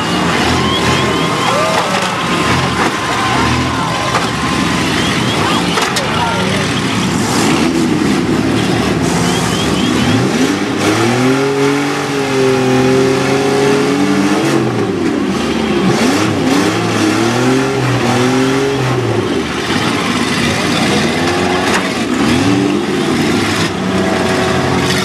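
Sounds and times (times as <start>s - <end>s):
car engines revving: 0.0s - 25.0s
cars ramming knocks: 0.2s - 7.9s.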